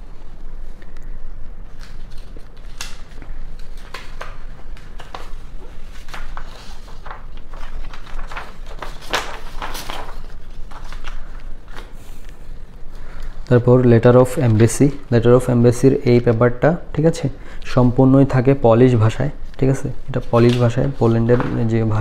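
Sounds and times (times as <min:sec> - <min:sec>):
steady low hum: 0:00.0 - 0:22.0
paper rustling and crinkling: 0:01.7 - 0:13.6, 0:14.2 - 0:15.1, 0:19.4 - 0:22.0.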